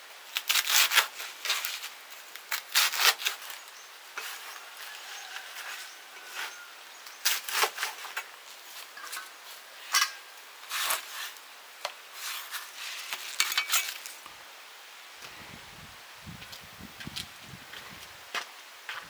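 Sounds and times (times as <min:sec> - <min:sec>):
metal cookware clinking and clattering: 0:09.9 - 0:10.2.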